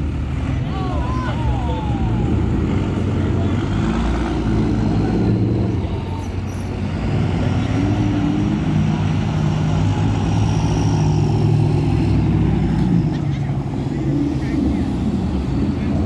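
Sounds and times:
vehicles driving slowly past: 0.0 - 16.0.

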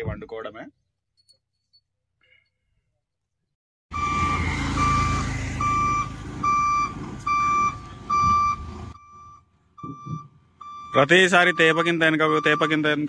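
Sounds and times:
reversing alarm beeping: 3.9 - 13.0.

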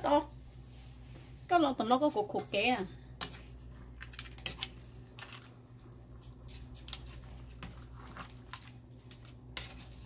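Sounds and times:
spoon stirring food in pan: 2.3 - 10.0.

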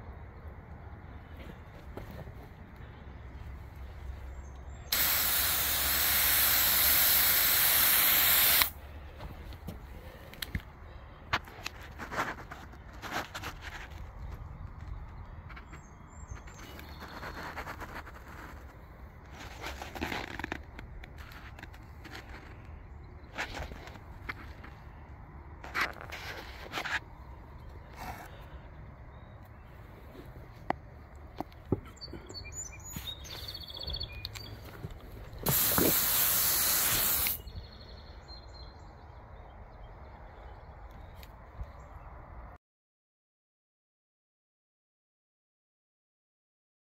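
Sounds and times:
hose spraying water: 4.9 - 8.8, 35.4 - 37.4
footsteps crunching on asphalt: 32.8 - 36.0.

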